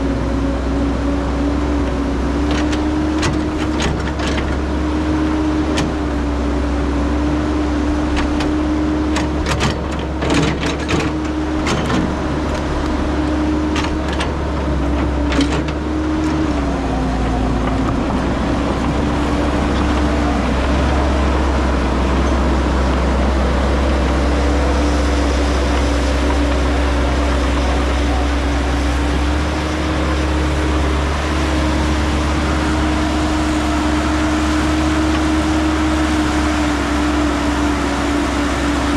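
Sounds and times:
excavator diesel engine running: 0:00.0 - 0:38.9.

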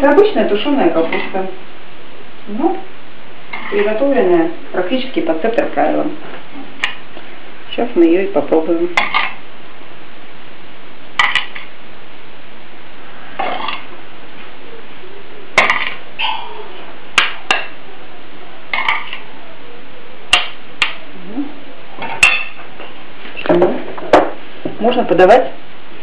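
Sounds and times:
utensil clinking and scraping pan: 0:03.5 - 0:04.0, 0:09.0 - 0:09.4, 0:13.4 - 0:13.9, 0:18.7 - 0:19.3.

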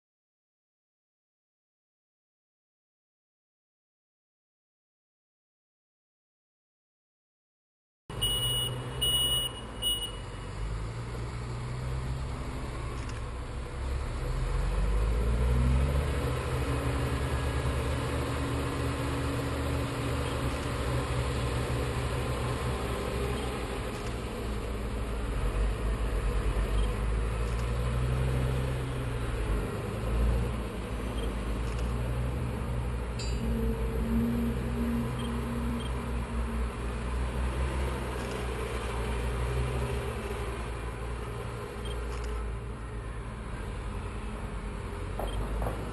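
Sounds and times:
heavy diesel machinery rumbling: 0:08.1 - 0:45.9
engine revving: 0:10.6 - 0:42.6.

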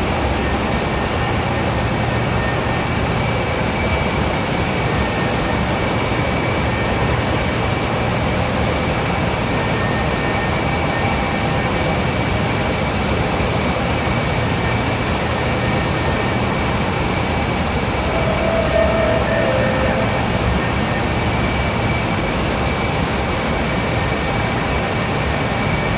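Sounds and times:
factory machinery running: 0:00.0 - 0:25.9
short tone: 0:15.6 - 0:22.9.

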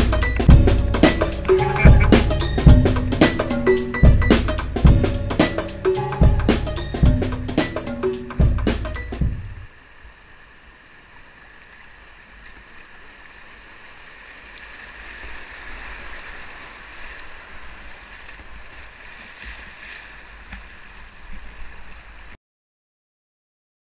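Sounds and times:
paddle splashes: 0:09.7 - 0:22.4.

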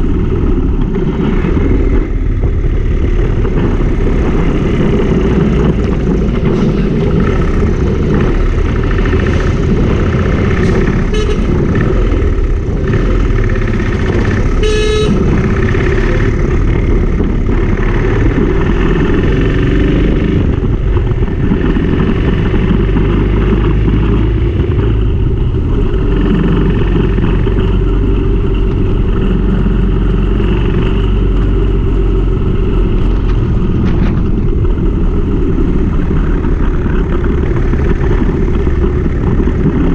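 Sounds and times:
motorcycle engine and road rumble: 0:00.0 - 0:39.9
wind noise: 0:00.0 - 0:39.9
vehicle horn toot: 0:11.0 - 0:11.6, 0:14.5 - 0:15.5.

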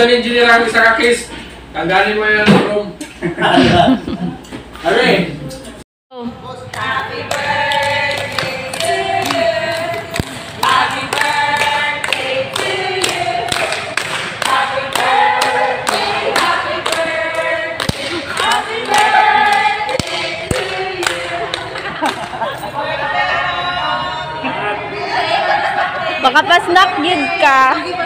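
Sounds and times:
group of people singing: 0:06.6 - 0:28.0
hand clapping: 0:06.7 - 0:22.4.

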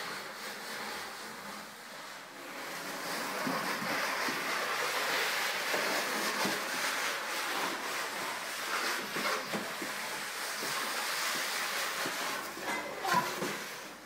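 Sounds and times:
plastic wastebasket scraping on floor: 0:00.0 - 0:14.0.

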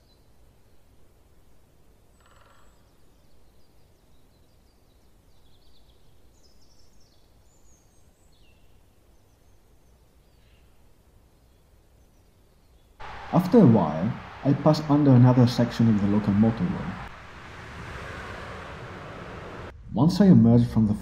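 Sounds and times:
birds chirping: 0:13.0 - 0:19.7
distant motorway traffic rumble: 0:13.0 - 0:19.8.

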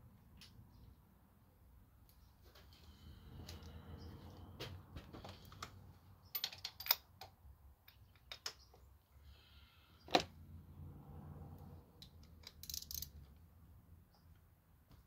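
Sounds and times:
metal tools clicking and clacking: 0:06.3 - 0:07.3, 0:12.0 - 0:13.3.

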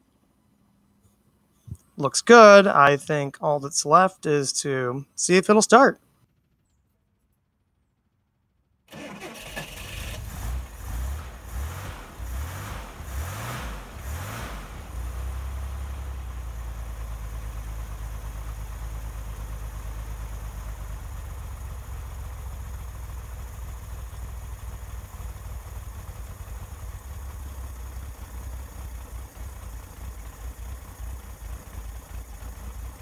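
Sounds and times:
car engine idling: 0:01.3 - 0:33.0.

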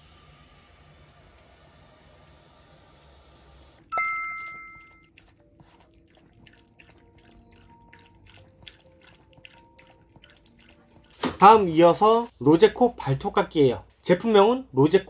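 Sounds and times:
gentle background music: 0:03.8 - 0:15.0
bell-like chime: 0:03.9 - 0:05.1
dog lapping water: 0:04.8 - 0:11.9.

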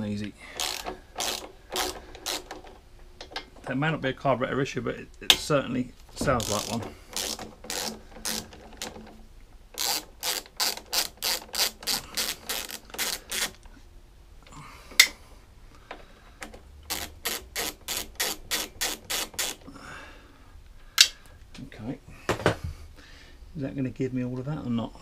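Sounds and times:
socket ratchet clicking: 0:00.5 - 0:03.5, 0:06.3 - 0:09.1, 0:09.8 - 0:13.7, 0:16.5 - 0:19.7.

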